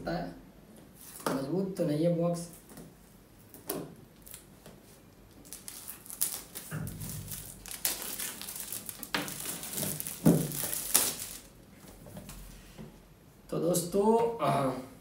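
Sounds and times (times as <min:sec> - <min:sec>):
plastic crinkling and snapping: 0:02.6 - 0:11.6
knife cutting plastic wrapping: 0:05.4 - 0:11.5.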